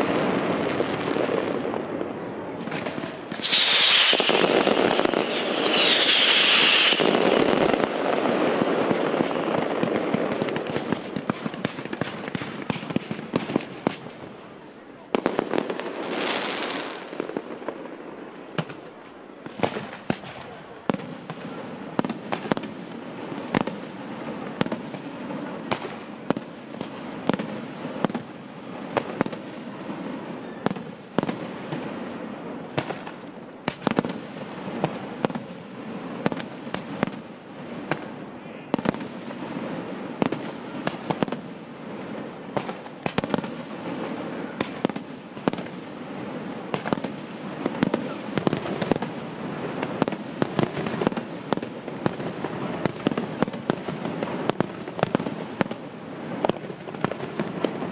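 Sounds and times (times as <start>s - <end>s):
firework shells bursting: 2.7s - 8.0s
crackling and fizzing stars: 3.4s - 7.0s.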